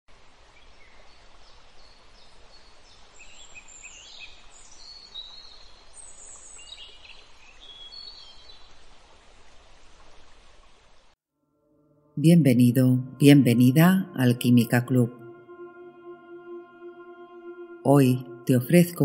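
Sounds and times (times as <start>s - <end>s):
steady outdoor hiss: 0.1s - 11.2s
songbirds chirping and trilling: 0.6s - 8.8s.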